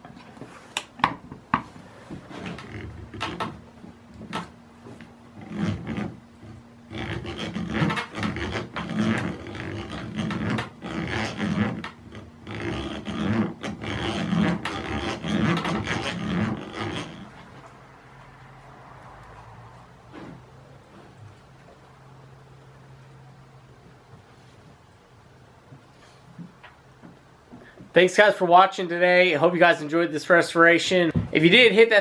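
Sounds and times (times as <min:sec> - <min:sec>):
hand drill grinding into wood: 0:02.3 - 0:17.8.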